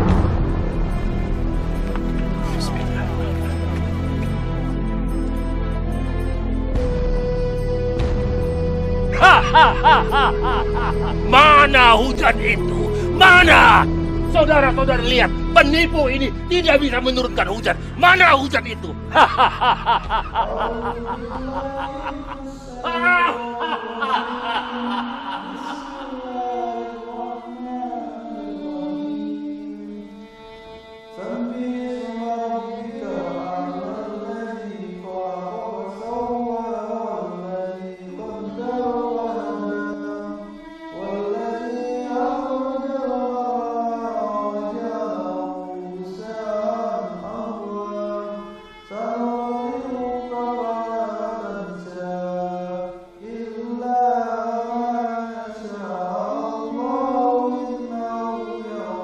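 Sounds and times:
person chanting long notes: 9.1 - 14.0, 18.8 - 29.6.

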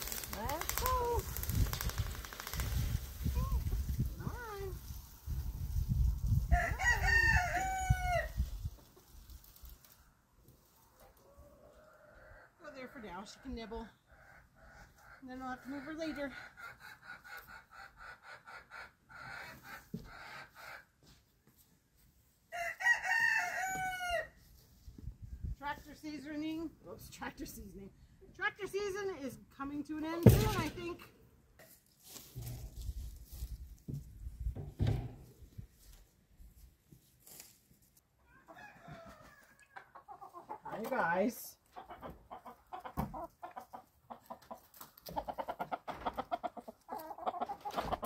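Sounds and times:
rooster crowing: 6.5 - 8.3, 22.5 - 24.3, 38.3 - 39.6.

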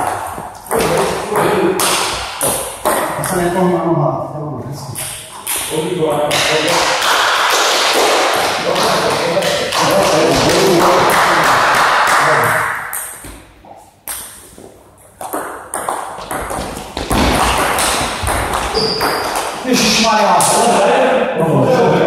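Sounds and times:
table tennis ball hits: 0.0 - 3.4, 5.0 - 13.5, 14.1 - 19.6.

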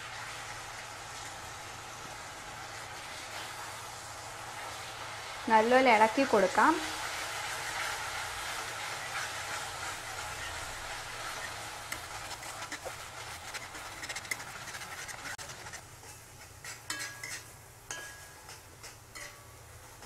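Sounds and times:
food sizzling in oil: 0.0 - 20.0
spatula scraping a pan: 6.8 - 20.0.

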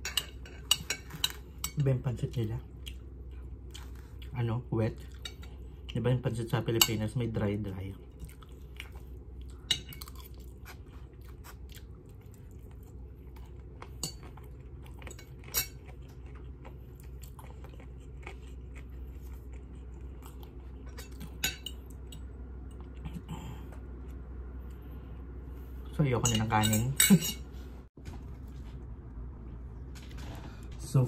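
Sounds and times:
steady low hum: 0.0 - 31.0
chewing noodles: 8.0 - 23.4
metal cutlery clinking: 26.2 - 27.5.

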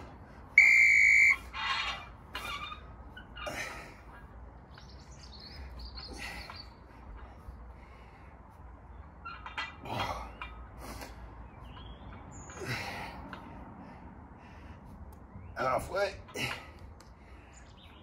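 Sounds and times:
long electronic beep: 0.6 - 1.4.

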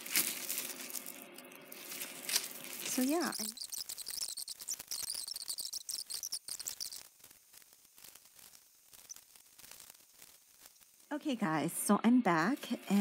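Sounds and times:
metal chains and beads clinking: 2.7 - 7.0.

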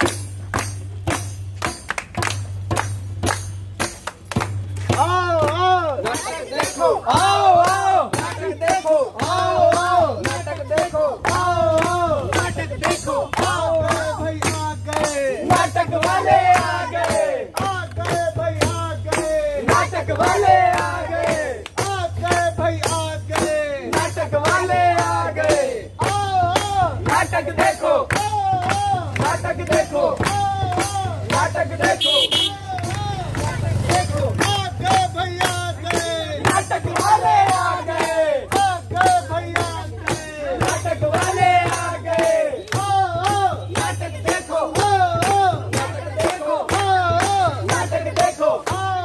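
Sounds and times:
hand claps: 0.0 - 49.0
folk song singing: 4.9 - 49.0.

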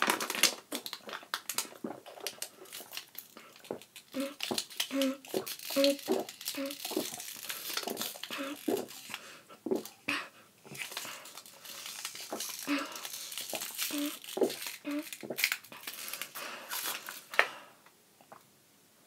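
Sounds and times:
plastic bottle crinkling: 0.0 - 17.6
low throat sounds: 4.1 - 7.1.

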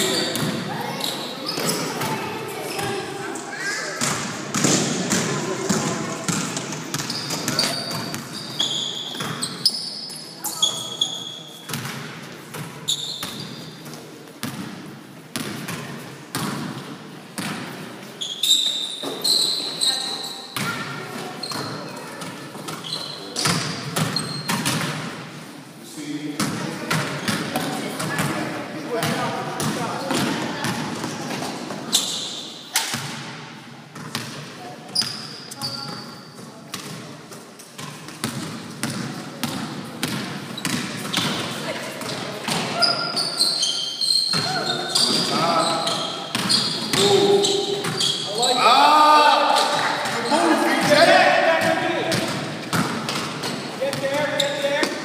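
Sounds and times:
basketball bouncing on gym floor: 0.1 - 0.7, 4.0 - 9.7, 11.7 - 13.6, 14.4 - 17.8, 20.6 - 25.1, 26.4 - 31.5, 34.0 - 36.0, 37.8 - 43.0, 44.3 - 48.1, 51.6 - 55.0
basketball bouncing on wooden floor: 4.0 - 8.3
short high squeak: 18.2 - 20.4.

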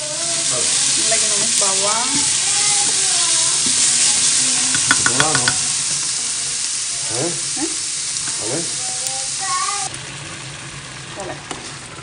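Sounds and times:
onion sizzling in a frying pan: 0.0 - 12.0
spatula stirring: 0.2 - 6.4.

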